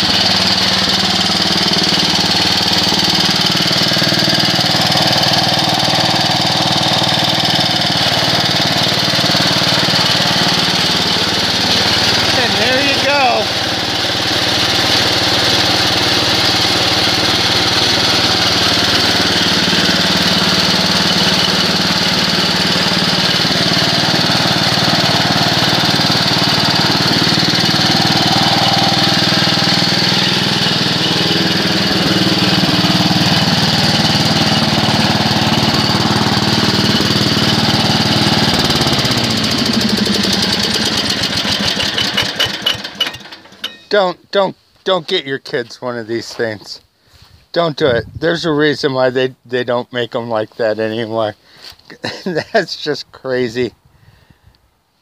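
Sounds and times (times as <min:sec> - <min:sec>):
garden tractor engine running: 0:00.0 - 0:45.7.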